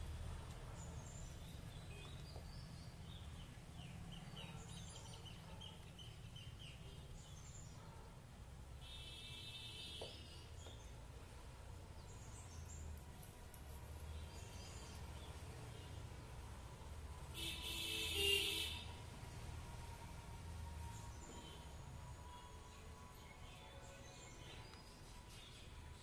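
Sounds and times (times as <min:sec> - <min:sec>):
small birds chirping: 0:00.5 - 0:08.1, 0:12.0 - 0:16.0.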